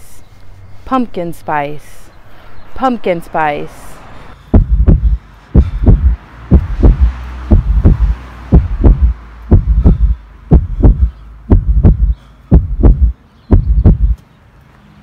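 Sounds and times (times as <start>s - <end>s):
deep heartbeat thumps: 4.4s - 14.2s.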